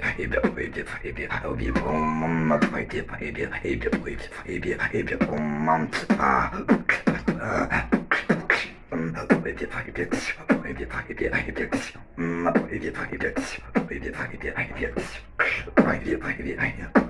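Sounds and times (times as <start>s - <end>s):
person beatboxing: 0.0s - 17.0s.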